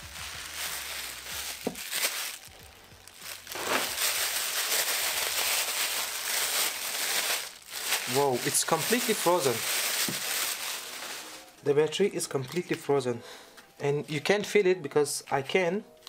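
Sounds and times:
plastic bag crinkling: 0.0 - 11.6
towel rustling softly: 3.2 - 11.6.

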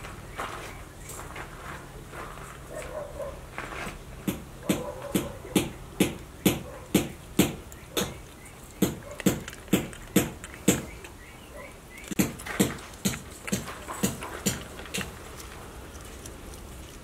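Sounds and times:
porcupine crunching food: 7.6 - 17.0.

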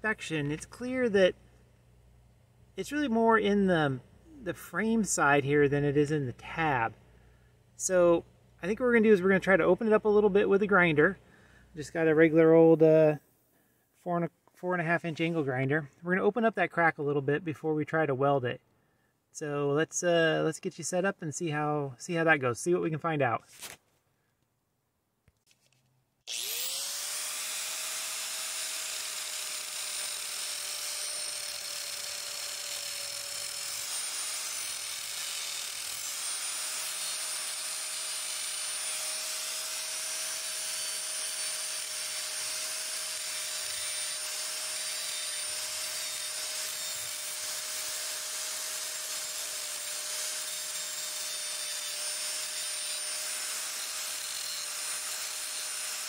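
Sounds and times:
angle grinder grinding metal: 26.3 - 56.0.

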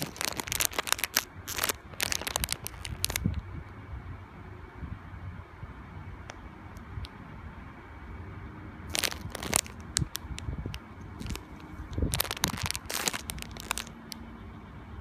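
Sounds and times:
plastic packaging crinkling: 0.0 - 3.4, 8.9 - 10.5, 11.1 - 14.2.

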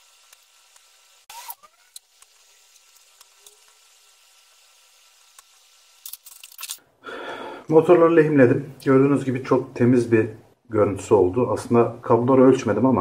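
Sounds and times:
solder sizzling: 0.0 - 6.7
faint steady hiss: 0.0 - 13.0.

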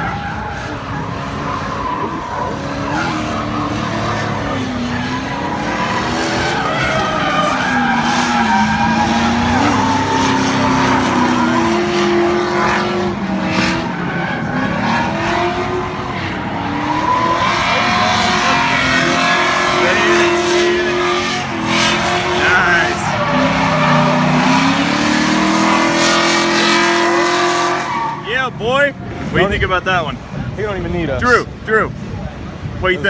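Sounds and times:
tyres squealing: 0.0 - 12.2
car engine revving: 0.0 - 30.7.

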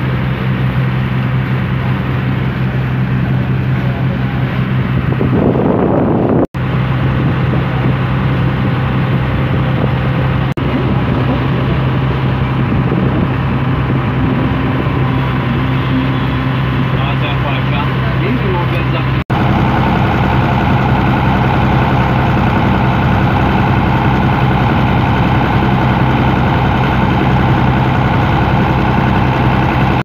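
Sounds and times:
boat engine droning: 0.0 - 30.0
wind on microphone: 3.1 - 17.2
water rushing: 6.6 - 30.0.

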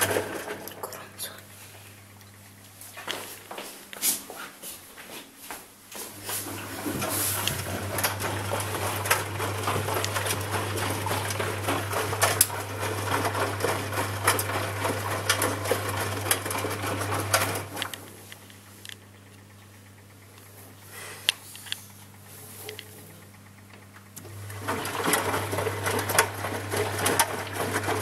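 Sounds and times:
washing machine humming and rattling: 0.0 - 28.0.

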